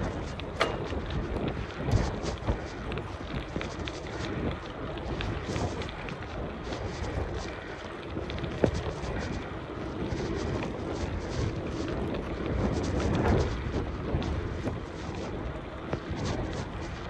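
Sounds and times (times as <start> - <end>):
bicycle rattling clicks: 0.0 - 13.1
bicycle tyre noise: 0.0 - 17.0
wind rumbling on microphone: 0.0 - 17.0.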